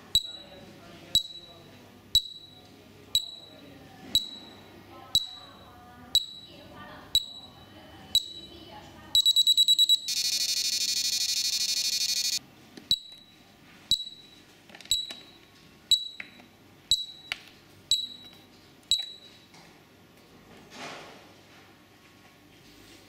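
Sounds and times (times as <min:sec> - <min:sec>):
rapid high beeps: 0:00.2 - 0:00.6, 0:01.2 - 0:01.6, 0:02.2 - 0:02.6, 0:03.2 - 0:03.6, 0:04.2 - 0:04.6, 0:05.2 - 0:06.6, 0:07.2 - 0:08.6, 0:09.2 - 0:13.3
harsh continuous buzzer: 0:09.2 - 0:12.4
short high beeps: 0:09.2 - 0:16.2.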